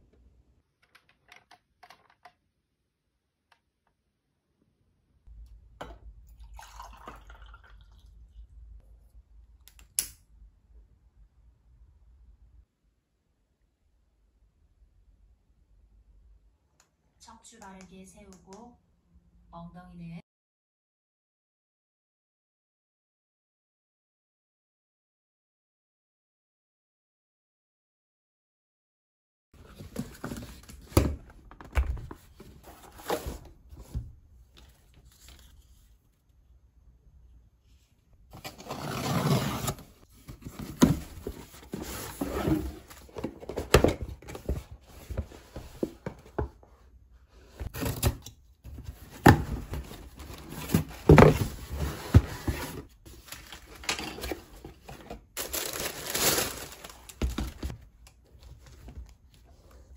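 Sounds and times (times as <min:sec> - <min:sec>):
wrapping rustling and tearing: 0:55.4 - 0:57.6.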